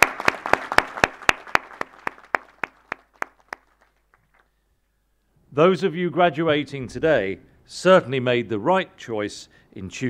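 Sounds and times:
audience applause: 0.0s - 4.4s.

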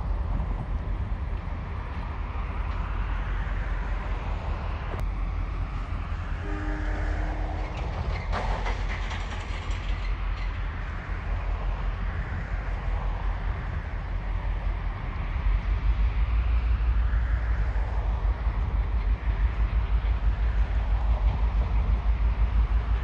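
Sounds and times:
diesel locomotives rumbling: 0.0s - 23.0s
faint horn-like tone: 6.4s - 7.8s.

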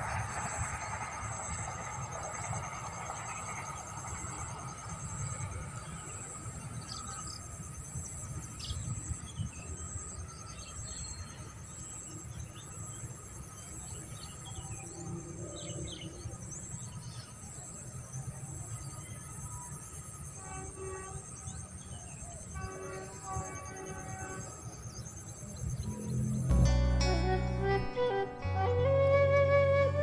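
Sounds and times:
insects trilling: 0.0s - 26.5s
low rumble: 26.5s - 30.0s.

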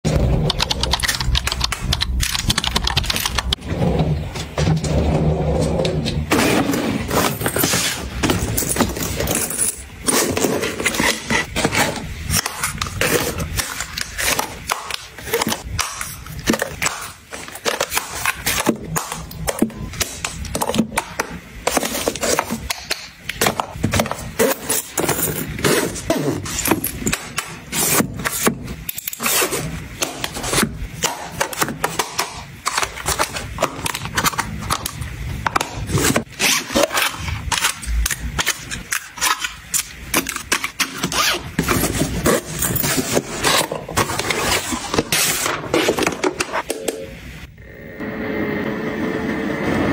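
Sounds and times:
plastic cosmetics clicking and scraping: 0.1s - 3.6s.

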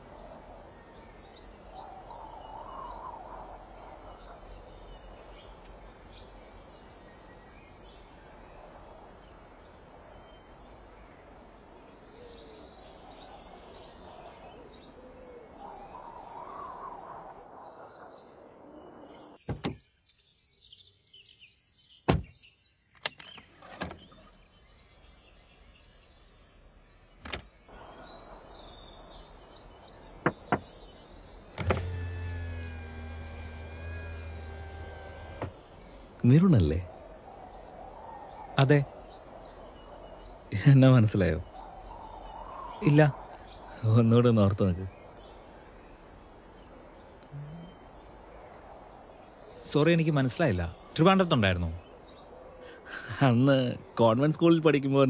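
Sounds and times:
steady outdoor hiss: 0.0s - 55.0s
bird calls: 10.2s - 26.2s, 27.0s - 55.0s
sharp clicks and knocks: 31.6s - 35.5s.

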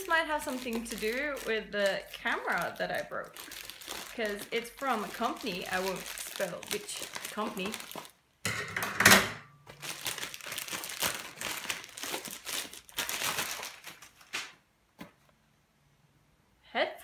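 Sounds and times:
plastic satchel crinkling: 0.0s - 8.2s, 9.6s - 14.6s.

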